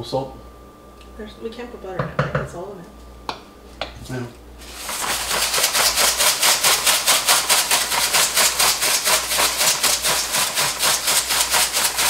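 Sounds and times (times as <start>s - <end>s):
salt grinder grinding: 4.6s - 12.0s.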